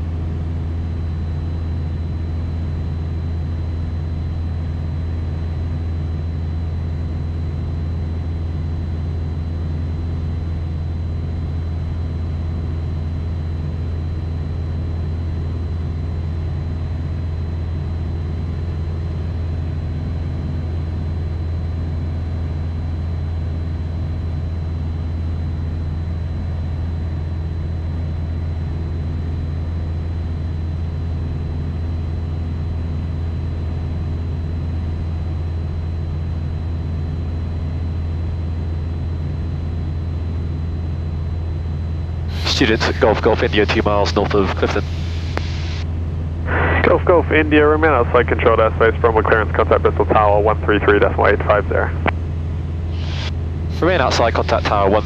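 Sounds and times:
propeller aircraft engine droning: 0.0 - 55.0
high-pitched whine: 26.7 - 55.0.

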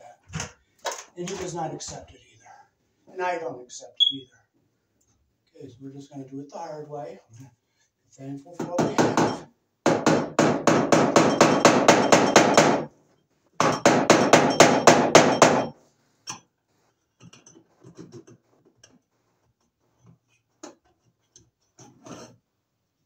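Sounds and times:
pliers hammering: 8.6 - 12.9, 13.6 - 15.7.

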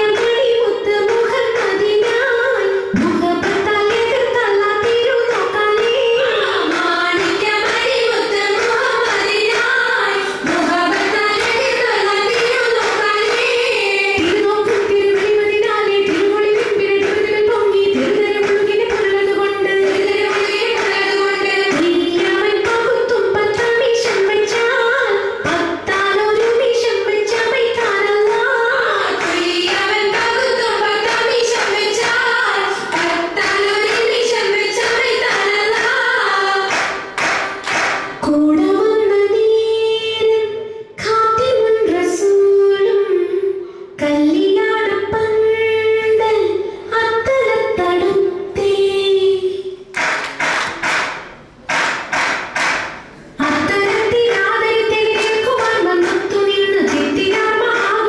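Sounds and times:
women singing in unison: 0.0 - 37.2, 53.4 - 58.0
sharp hand claps: 1.0 - 9.8, 10.4 - 24.8, 25.4 - 38.3, 49.9 - 58.0.

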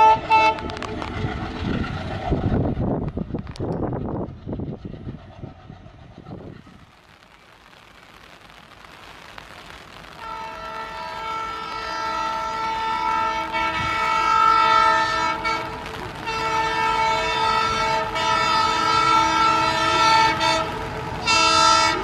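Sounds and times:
locomotive horn blasts: 0.0 - 0.8, 10.2 - 22.0
train rumble: 0.0 - 7.4, 10.0 - 22.0.

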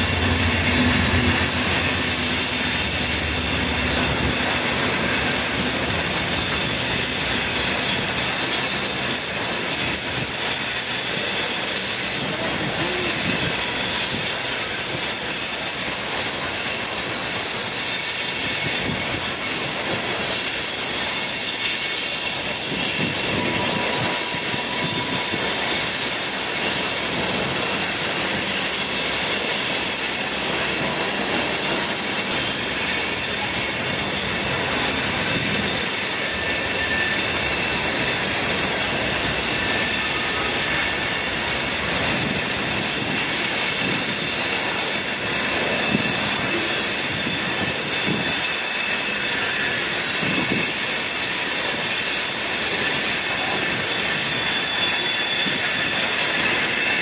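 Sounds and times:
high-pitched wheel squeal: 0.0 - 13.1, 27.6 - 57.0
train wheels rolling on rails: 0.0 - 57.0.

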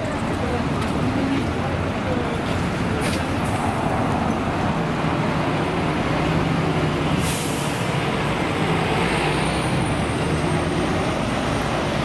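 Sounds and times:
bus engine driving past: 0.0 - 12.0
compressed air hiss: 7.2 - 7.9.

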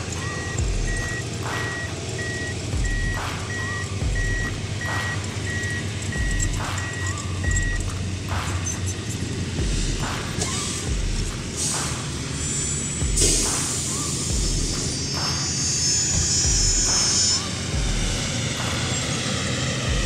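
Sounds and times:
backup alarm beeping: 0.0 - 7.9
music with slow beat: 0.0 - 20.0.

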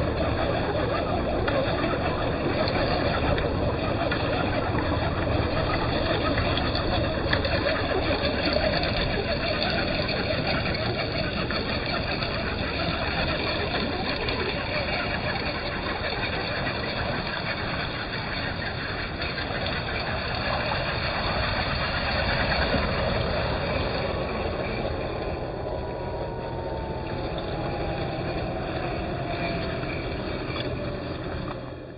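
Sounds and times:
electric motor whine: 0.0 - 31.9
water splashing: 0.0 - 31.9.

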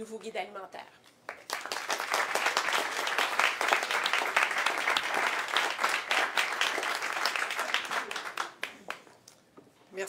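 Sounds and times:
audience applauding: 1.3 - 9.1.

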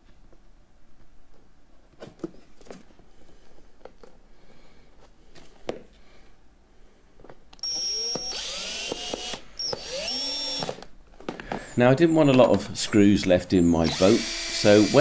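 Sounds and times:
cordless drill whine: 7.6 - 10.9, 13.6 - 15.0.

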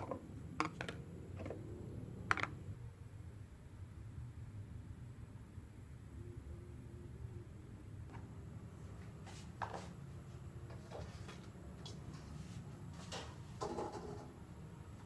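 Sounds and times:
kitchen items knocking and clattering: 0.0 - 1.0, 13.1 - 14.3.

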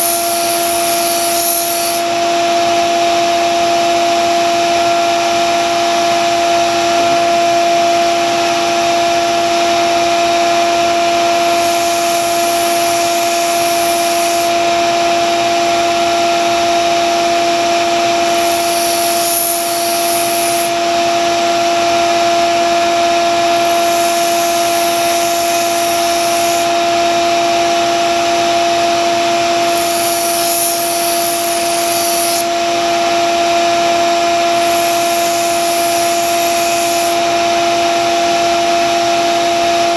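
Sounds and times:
blade grinding hiss: 0.0 - 2.1, 11.4 - 14.6, 18.3 - 20.8, 23.5 - 26.7, 29.6 - 32.5, 34.5 - 37.2
belt sander motor humming: 0.0 - 2.2, 11.0 - 14.8, 18.1 - 27.9, 29.2 - 33.1, 34.3 - 37.5.

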